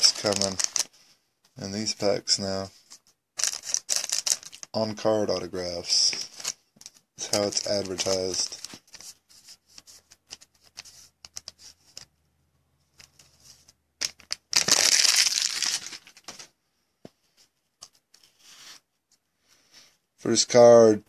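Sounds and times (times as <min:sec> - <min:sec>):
wrapper crinkling: 0:00.0 - 0:00.9, 0:03.4 - 0:04.8, 0:06.0 - 0:09.0, 0:14.0 - 0:16.4
wrapper tearing open: 0:00.0 - 0:00.9, 0:03.4 - 0:04.7, 0:14.0 - 0:16.3
cards rustling: 0:00.0 - 0:01.0, 0:01.8 - 0:12.1, 0:12.9 - 0:16.5.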